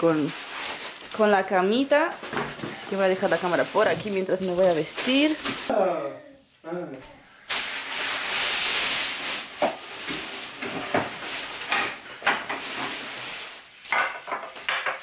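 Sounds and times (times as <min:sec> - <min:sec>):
paper and cardboard rustling: 0:00.0 - 0:05.7, 0:07.5 - 0:14.7
wooden parts knocking: 0:13.9 - 0:15.0.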